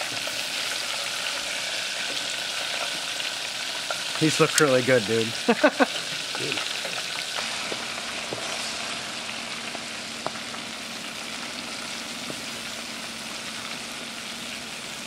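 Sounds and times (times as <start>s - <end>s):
meat sizzling on a grill: 0.0s - 15.0s.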